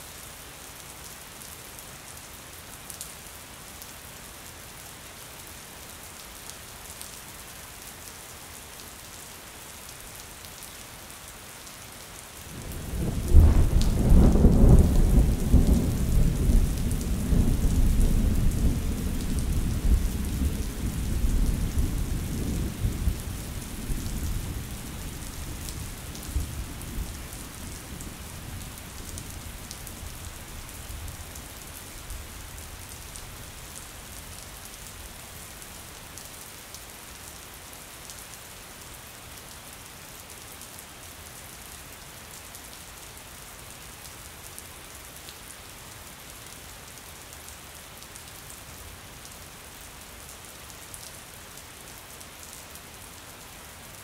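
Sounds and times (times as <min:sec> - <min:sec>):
rain on a window pane: 0:05.8 - 0:54.0
thunder rumble: 0:12.8 - 0:20.7.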